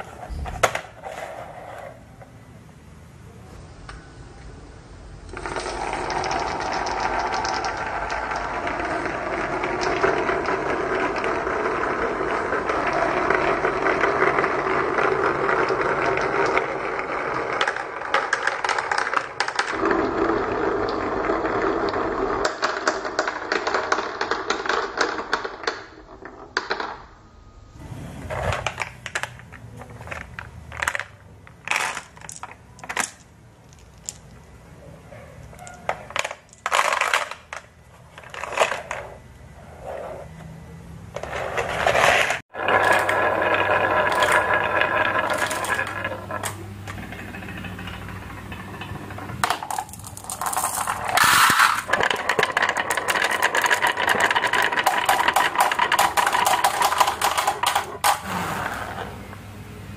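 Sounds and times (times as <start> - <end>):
marbles clicking in plastic toy: 5.3 - 20.2, 28.8 - 34.4, 42.6 - 58.2
marbles rattling down wooden tracks: 5.3 - 27.0, 28.5 - 34.4, 35.5 - 39.2, 41.2 - 59.1.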